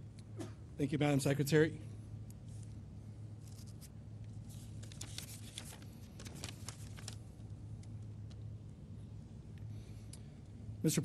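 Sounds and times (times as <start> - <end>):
steady low hum: 0.0 - 11.0
paper tissue crinkling: 3.4 - 8.0.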